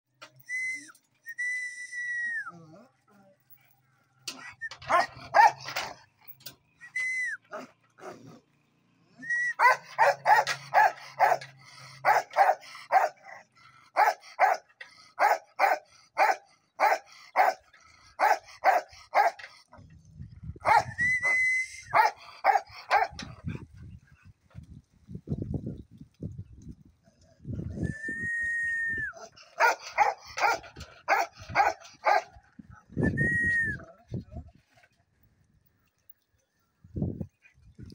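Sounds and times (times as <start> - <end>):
dog barking: 4.9 - 5.6, 9.6 - 11.4, 12.0 - 13.2, 14.0 - 14.6, 15.2 - 17.6, 18.2 - 19.4, 22.0 - 23.2, 29.6 - 32.4.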